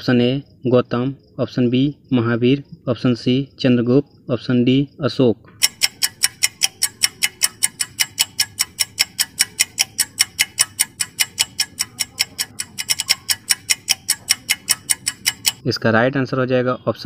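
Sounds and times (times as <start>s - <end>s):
fast clock ticking: 5.6s - 15.6s.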